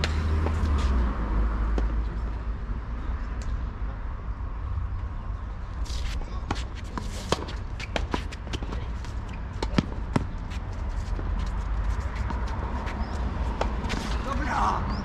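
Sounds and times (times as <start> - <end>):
footsteps and shoe scuffs: 0.0 - 1.1, 5.8 - 14.4
ball bounces: 9.5 - 10.4.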